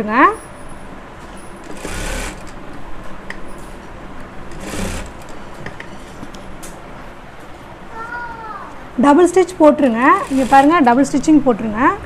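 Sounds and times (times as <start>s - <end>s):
sewing machine stitching: 1.2s - 2.6s, 4.5s - 5.6s, 10.0s - 10.9s.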